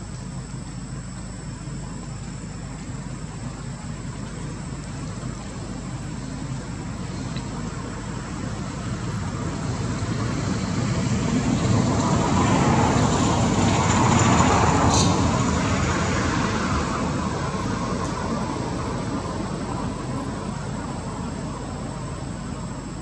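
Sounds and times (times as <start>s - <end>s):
low traffic rumble: 0.0s - 23.0s.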